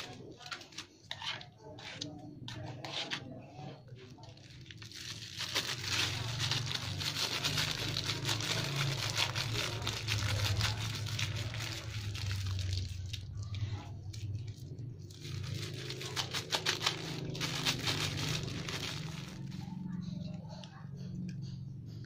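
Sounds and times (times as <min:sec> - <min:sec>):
plastic bag crinkling: 0:04.2 - 0:19.7.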